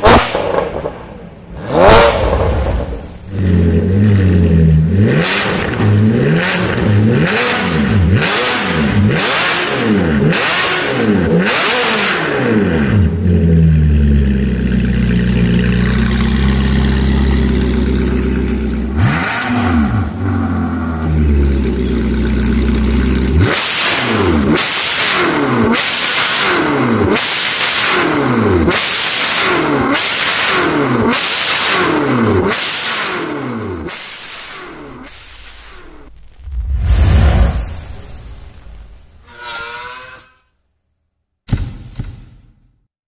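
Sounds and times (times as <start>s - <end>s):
car engine revving in sharp blips: 0.0s - 36.6s
car engine idling: 13.1s - 19.2s.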